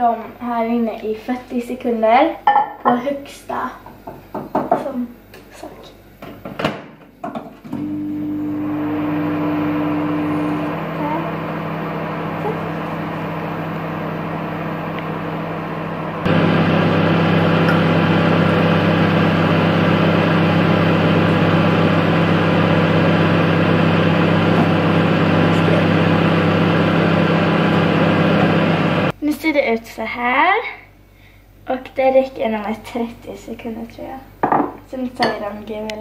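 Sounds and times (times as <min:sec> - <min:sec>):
microwave oven humming: 0:07.7 - 0:29.2.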